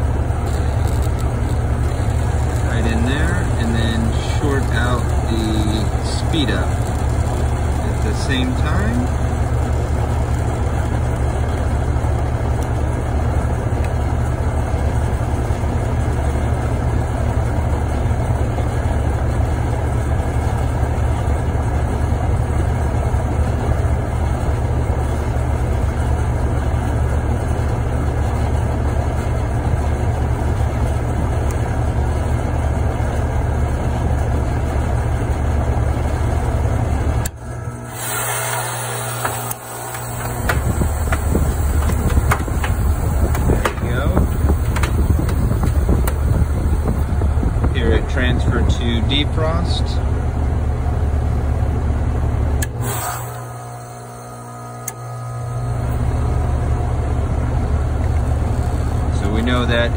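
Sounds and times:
heat pump unit humming: 0.0s - 59.9s.

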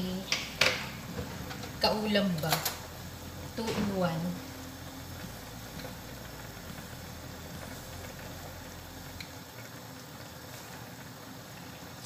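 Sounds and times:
low hum: 0.0s - 9.6s
pot boiling: 0.0s - 12.0s.

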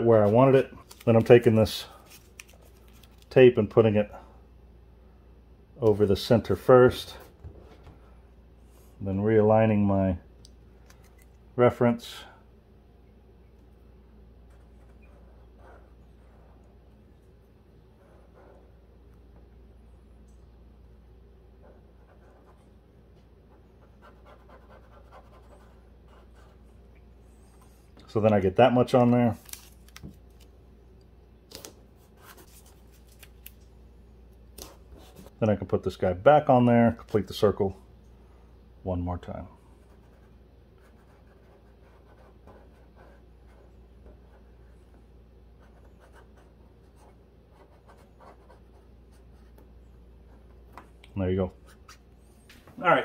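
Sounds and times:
steady low hum: 0.0s - 53.0s
marker scratching strokes: 23.5s - 26.6s, 45.6s - 49.7s
marker scratching on tape: 23.8s - 26.6s.

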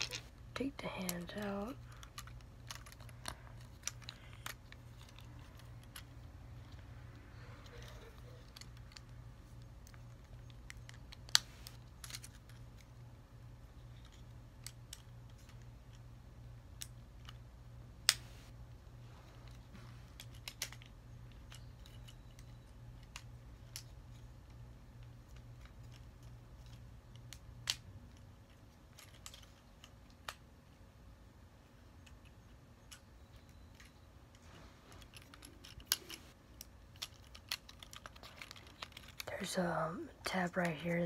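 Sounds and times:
low steady hum: 0.0s - 41.0s
plastic clicks and snaps: 7.7s - 12.9s, 20.2s - 28.3s.

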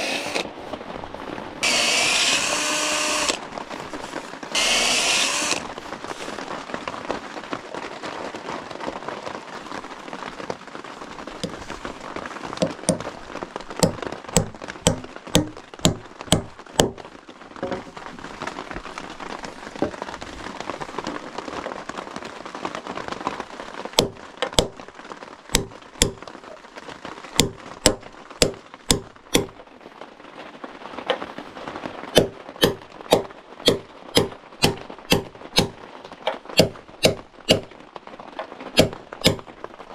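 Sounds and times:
hammer striking wood: 1.6s - 3.4s, 12.6s - 13.1s, 13.8s - 17.0s, 24.0s - 24.8s, 25.6s - 26.2s, 27.4s - 29.5s, 32.2s - 35.8s, 36.6s - 37.7s, 38.8s - 39.5s.

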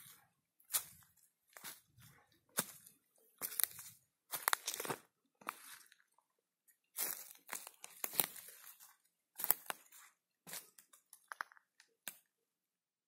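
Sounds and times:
footsteps crunching on gravel: 0.7s - 5.9s, 7.0s - 10.8s.

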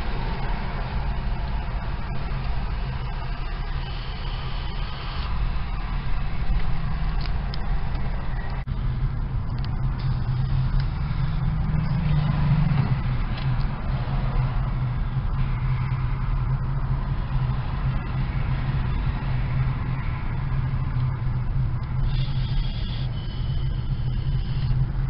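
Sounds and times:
car engine drone from inside: 0.0s - 25.0s
road noise hiss: 0.0s - 25.0s.

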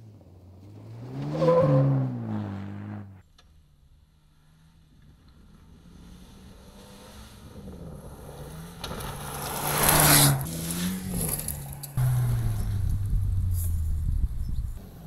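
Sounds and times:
rally car engine approaching: 0.0s - 15.0s.

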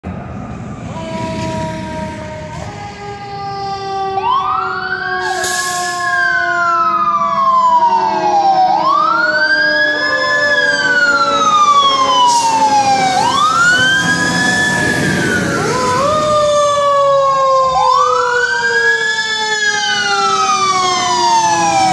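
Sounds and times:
fire truck siren wailing: 0.0s - 21.9s.

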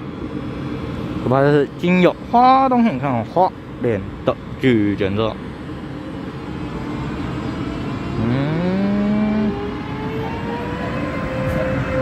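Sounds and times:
train rumble: 0.0s - 12.0s
rising electric motor whine: 6.3s - 12.0s.

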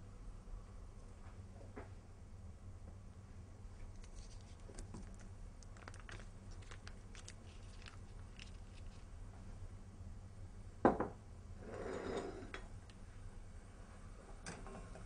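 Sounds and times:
foil wrapper crinkling: 4.0s - 9.1s.

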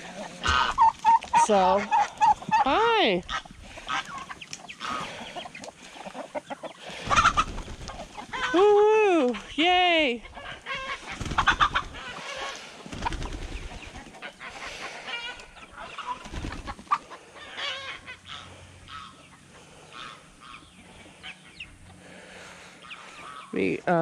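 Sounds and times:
chickens clucking: 0.0s - 23.9s
chicken wings beating: 7.0s - 8.2s, 11.0s - 12.1s, 12.8s - 14.1s, 16.1s - 17.0s.

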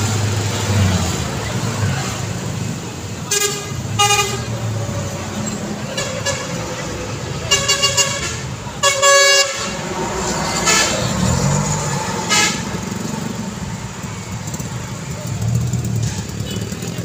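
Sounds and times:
traffic engine and tyre rumble: 0.0s - 17.0s
vehicle horn honking: 3.3s - 5.0s, 5.9s - 6.8s, 7.4s - 10.0s, 10.6s - 11.4s, 12.3s - 12.8s.

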